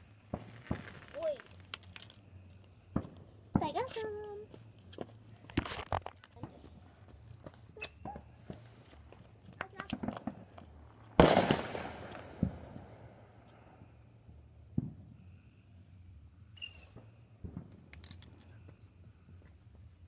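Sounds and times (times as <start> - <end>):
fireworks booming: 0.0 - 1.6, 9.8 - 14.0, 14.6 - 15.4
sharp firework bangs: 0.2 - 1.3, 11.2 - 13.2.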